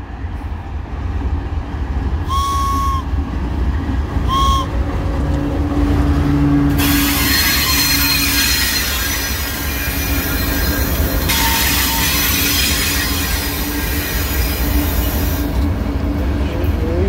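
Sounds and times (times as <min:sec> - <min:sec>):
diesel locomotives rumbling: 0:00.0 - 0:17.0
toy train whistle tooting: 0:02.3 - 0:03.1, 0:04.3 - 0:04.7, 0:06.8 - 0:09.9, 0:11.3 - 0:13.2
wheels hissing on rails: 0:06.7 - 0:17.0.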